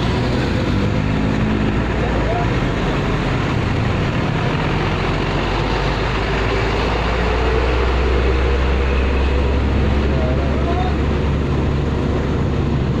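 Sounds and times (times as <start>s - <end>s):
diesel truck engine rumbling: 0.0s - 13.0s
road traffic noise: 0.0s - 13.0s.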